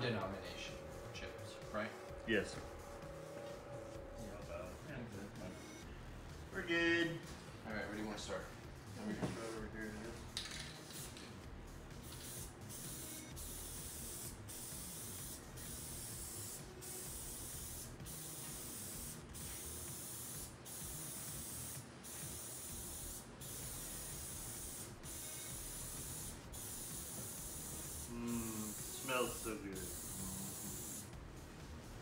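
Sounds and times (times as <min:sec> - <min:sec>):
aerosol spray hissing: 0:12.0 - 0:31.2.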